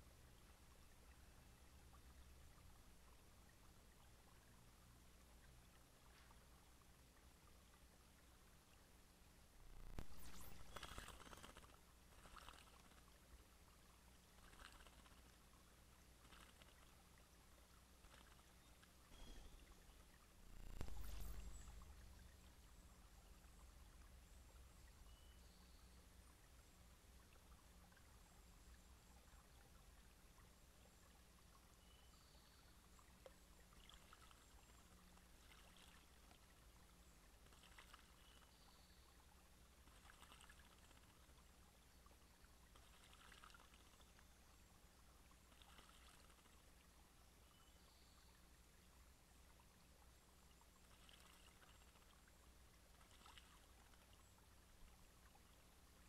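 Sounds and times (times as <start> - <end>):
low steady hum: 0.0 - 56.0
bird splashing in water: 10.4 - 13.0, 14.4 - 15.3, 37.4 - 38.4, 42.8 - 43.9, 53.0 - 53.7.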